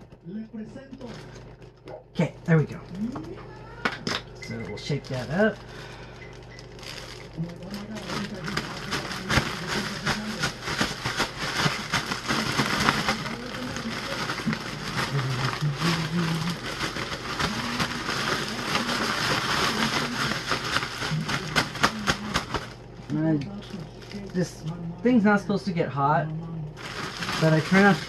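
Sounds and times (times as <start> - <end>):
plastic bag crinkling when shaken: 4.8 - 22.9, 26.8 - 28.0.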